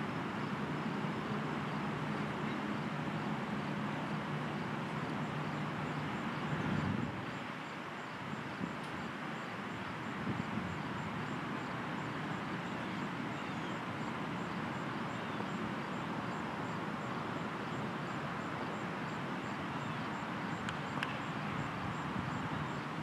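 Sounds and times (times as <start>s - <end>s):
outdoor background noise: 0.0s - 23.0s
faint high ticks: 20.6s - 21.2s.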